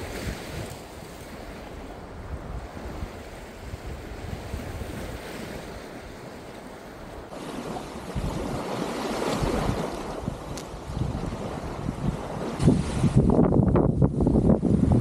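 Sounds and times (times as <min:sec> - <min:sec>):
steady wind: 0:00.0 - 0:15.0
surf washing on sand: 0:00.0 - 0:15.0
wind buffeting the microphone: 0:00.0 - 0:15.0.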